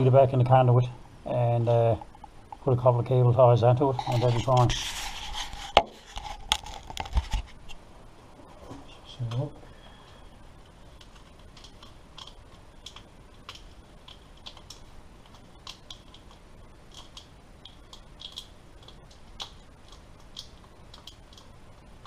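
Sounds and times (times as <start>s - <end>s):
wiring rustling: 3.6s - 7.8s, 10.5s - 22.0s.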